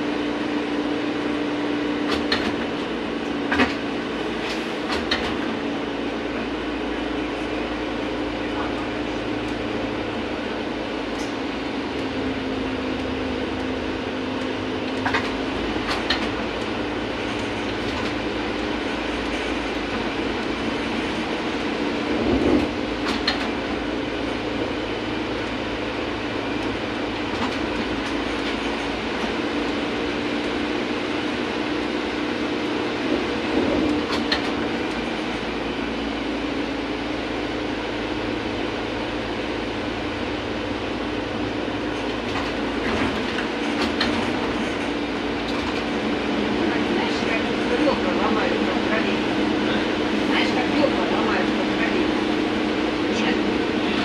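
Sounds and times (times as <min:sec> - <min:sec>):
trolleybus running with electric hum: 0:00.0 - 0:54.0.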